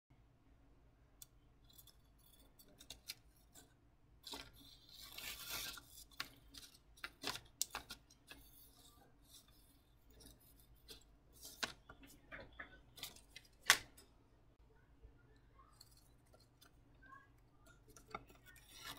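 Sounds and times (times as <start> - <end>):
knife cutting paper: 4.2 - 11.9.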